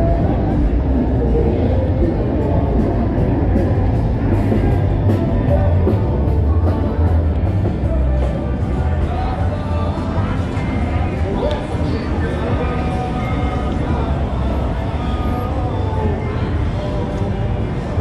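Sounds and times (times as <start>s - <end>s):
heavy bass line: 0.0s - 18.0s
loud amplified rock music: 0.0s - 18.0s.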